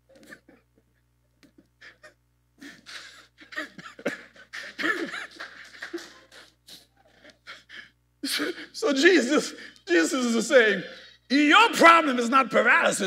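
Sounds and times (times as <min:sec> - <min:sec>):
man laughing breathily: 0:01.8 - 0:08.8.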